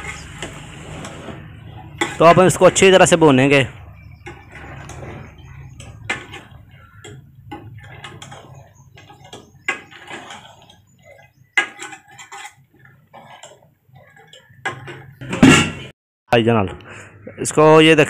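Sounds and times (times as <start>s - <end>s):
ladle scraping metal pot: 0.0s - 15.9s.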